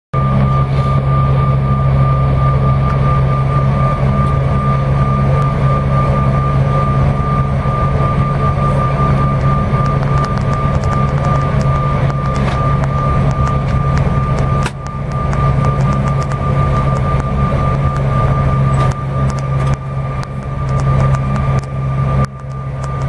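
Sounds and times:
jet engine hum and whine: 0:00.2 - 0:23.0.

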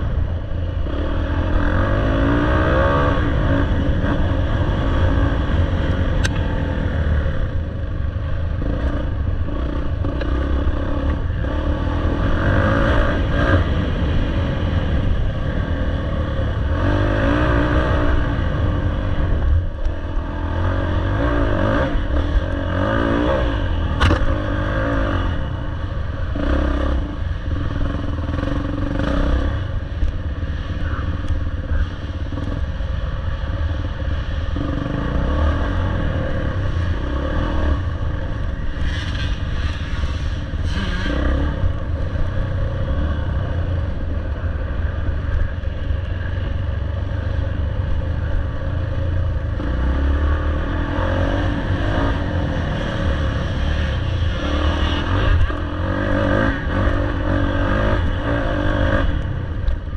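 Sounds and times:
dirt bike engine revving: 0:34.6 - 0:41.8.

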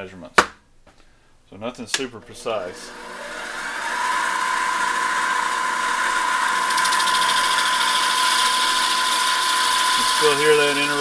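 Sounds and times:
lathe motor whining: 0:02.3 - 0:11.0
lathe tool cutting plastic pipe: 0:02.6 - 0:11.0.

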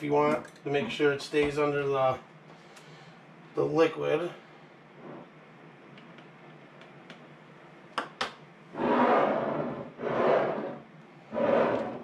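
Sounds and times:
glass jars rubbing on countertop: 0:08.8 - 0:12.0.

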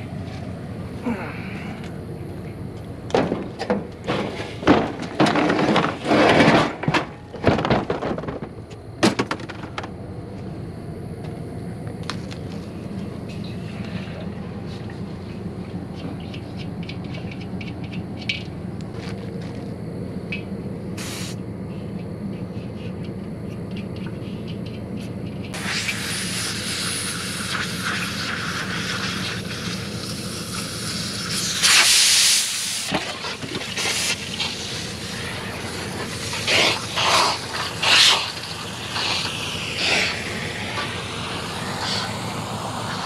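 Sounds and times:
steady low hum: 0:00.0 - 0:43.0
hiss of escaping pressure: 0:21.0 - 0:21.4, 0:25.6 - 0:32.9, 0:33.8 - 0:35.4, 0:36.0 - 0:43.0.

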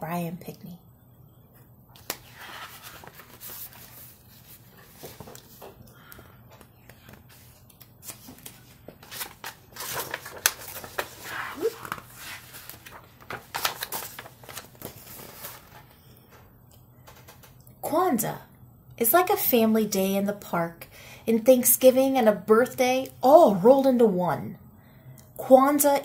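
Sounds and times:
book pages rustling: 0:02.0 - 0:16.0.

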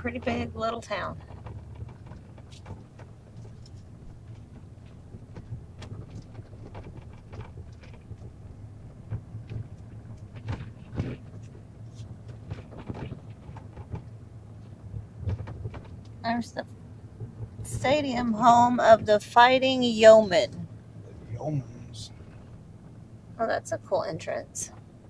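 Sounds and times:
engine and road rumble: 0:00.0 - 0:25.0
small clicks and knocks: 0:01.2 - 0:16.2.

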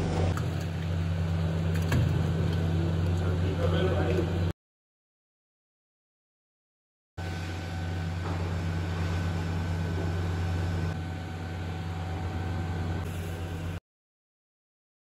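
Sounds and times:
mixing machine motor hum: 0:00.0 - 0:04.5, 0:07.2 - 0:13.8.

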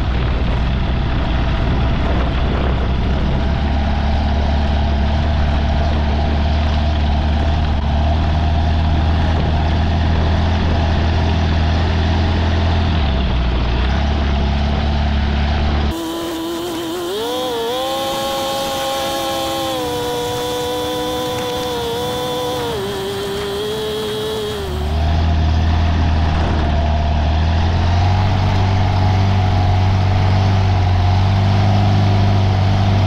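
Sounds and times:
engine whine rising in pitch: 0:00.0 - 0:33.0
aircraft engine droning: 0:15.8 - 0:26.9.

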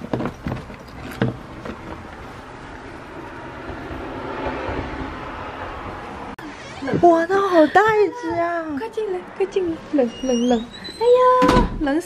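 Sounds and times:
steady rushing noise: 0:02.0 - 0:06.5.

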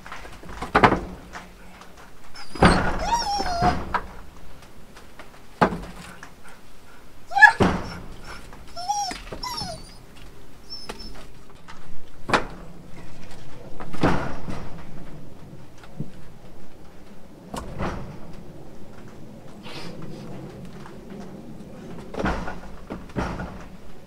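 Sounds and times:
dog whining: 0:02.3 - 0:04.1, 0:07.3 - 0:11.4.

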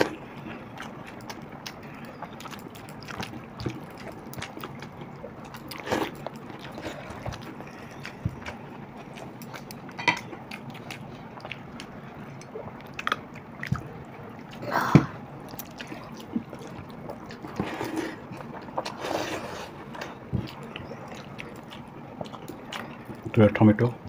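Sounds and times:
chewing: 0:00.0 - 0:23.8
wet squishing of rice by hand: 0:00.0 - 0:24.0.

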